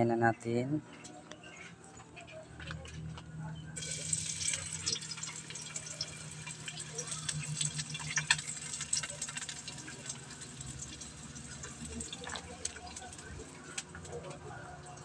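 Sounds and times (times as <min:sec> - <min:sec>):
onion sizzling in hot oil: 0:03.8 - 0:15.0.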